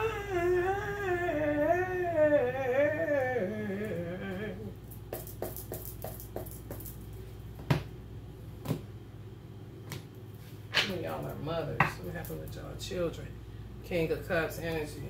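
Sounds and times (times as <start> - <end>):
woman singing slow melody: 0.0 - 4.9.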